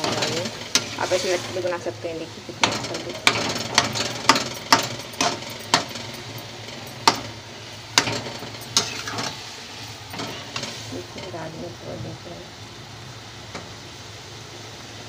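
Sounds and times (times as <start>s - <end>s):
metal spatula scraping a pot: 0.0s - 1.9s, 2.6s - 7.3s, 8.0s - 11.4s.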